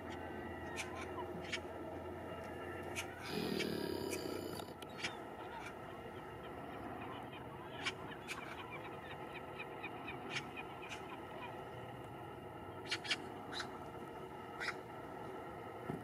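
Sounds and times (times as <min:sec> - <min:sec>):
steady background noise: 0:00.0 - 0:16.0
crows and gulls calling: 0:02.4 - 0:11.8, 0:12.8 - 0:13.9, 0:14.5 - 0:14.9.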